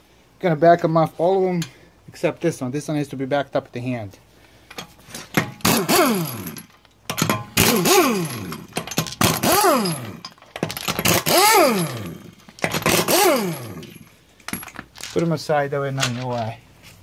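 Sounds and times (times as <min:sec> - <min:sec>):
impact wrench whirring: 0:05.4 - 0:14.1.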